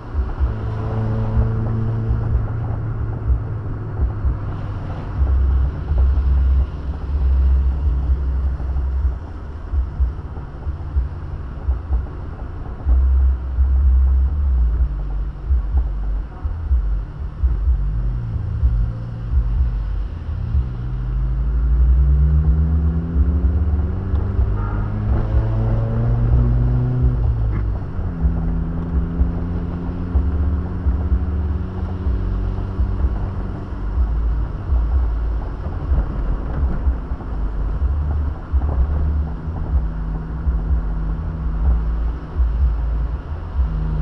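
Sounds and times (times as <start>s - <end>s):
car engine accelerating: 0.0s - 44.0s
low road rumble: 0.0s - 44.0s.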